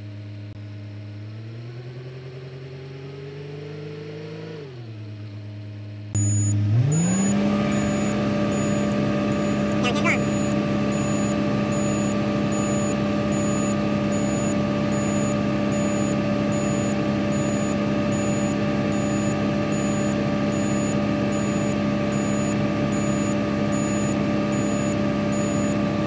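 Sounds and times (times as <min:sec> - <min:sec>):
short high beeps: 0:06.2 - 0:25.7
excavator diesel engine running: 0:06.2 - 0:26.0.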